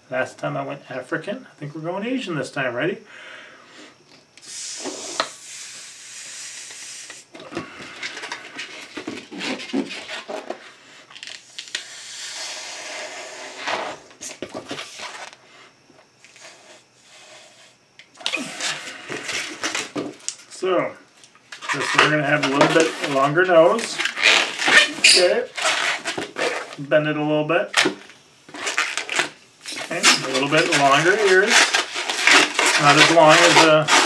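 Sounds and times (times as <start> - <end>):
hissing breaths into balloon: 3.2 - 8.9, 11.7 - 13.7, 15.4 - 19.7
balloon rubber squeaking: 9.0 - 10.4, 18.2 - 20.0, 21.6 - 26.8, 27.8 - 34.0.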